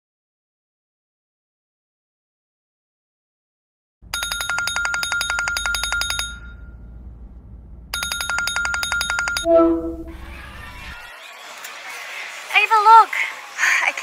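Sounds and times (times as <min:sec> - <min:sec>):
telephone ringing: 0:04.1 - 0:06.8, 0:08.0 - 0:10.2
brief lower tone: 0:09.0 - 0:10.3.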